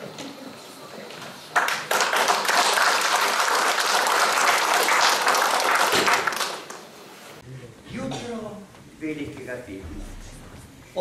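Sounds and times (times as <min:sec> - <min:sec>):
audience applauding: 0:01.6 - 0:06.9.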